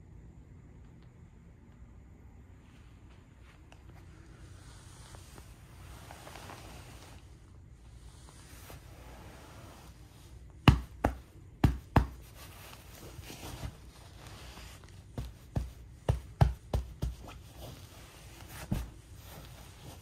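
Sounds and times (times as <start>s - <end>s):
hand patting a pillow: 10.4s - 20.0s.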